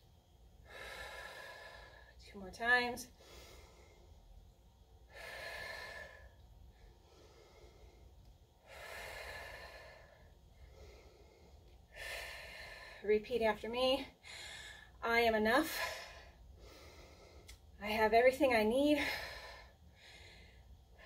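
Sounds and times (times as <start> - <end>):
woman breathing deeply: 0.6 - 2.2, 3.1 - 13.1, 14.1 - 15.0, 15.6 - 17.6, 18.9 - 21.0.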